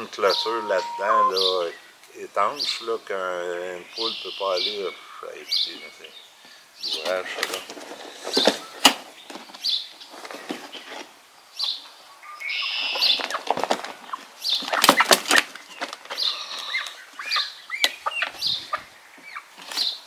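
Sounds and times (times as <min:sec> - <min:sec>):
hen calling: 0:00.0 - 0:02.0, 0:02.6 - 0:06.2, 0:12.1 - 0:13.3, 0:16.1 - 0:19.5.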